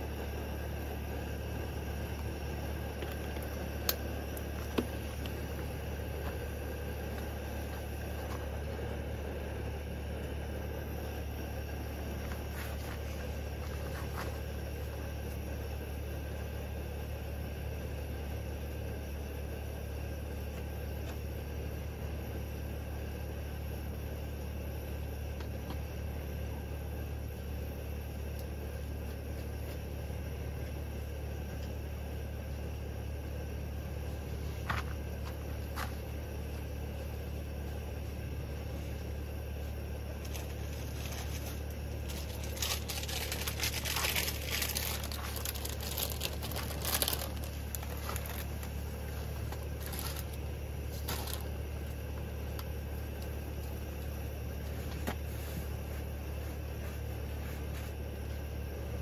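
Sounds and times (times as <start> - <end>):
low hum: 0.0 - 59.0
crinkling and rustling: 1.3 - 9.1, 11.0 - 15.4, 34.0 - 37.0, 37.6 - 58.5.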